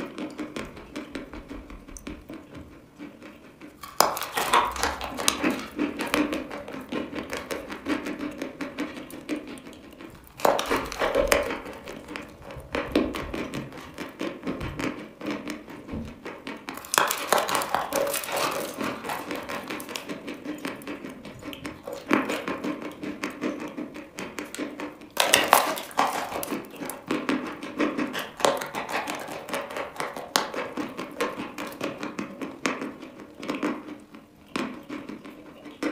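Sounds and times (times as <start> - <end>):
chewing chalk crunching: 3.3 - 8.2.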